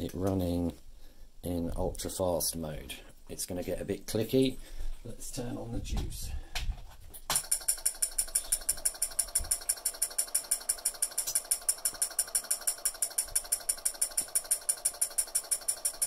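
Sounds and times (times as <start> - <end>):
relay contacts clicking rapidly: 7.3 - 16.0.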